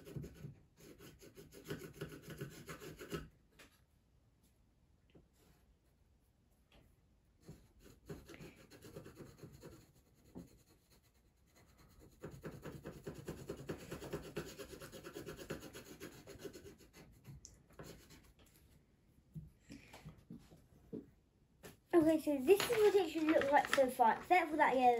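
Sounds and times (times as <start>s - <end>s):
pencil scribbling on paper: 0.0s - 3.4s, 7.4s - 18.6s.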